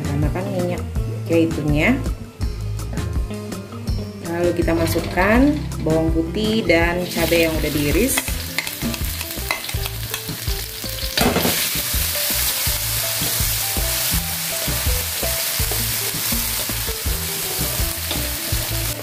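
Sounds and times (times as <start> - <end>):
garlic sizzling in oil: 6.4 - 19.0.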